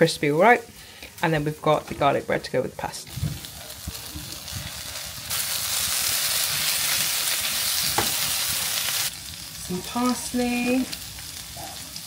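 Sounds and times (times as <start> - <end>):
sauce sizzling in a pan: 2.8 - 12.0.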